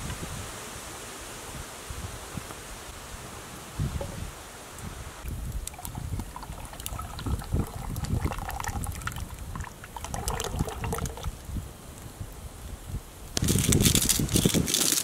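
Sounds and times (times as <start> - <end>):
sauce pouring and splashing into pot: 5.6 - 11.4.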